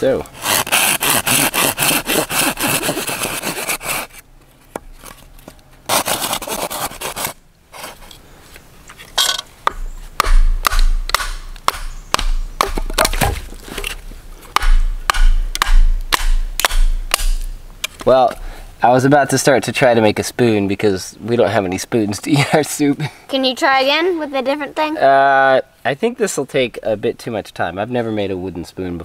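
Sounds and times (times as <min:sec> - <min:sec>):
knife scraping wood: 0:00.4 - 0:05.2, 0:05.9 - 0:08.2, 0:13.0 - 0:14.0.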